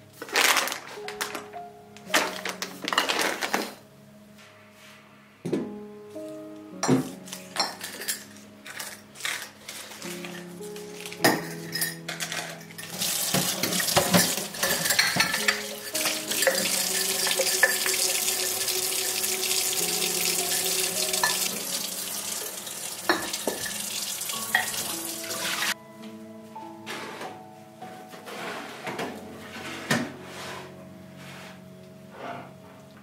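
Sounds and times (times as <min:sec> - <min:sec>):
glass jars clinking: 0:06.8 - 0:09.5, 0:11.1 - 0:25.7
tap water running into sink: 0:12.8 - 0:25.8.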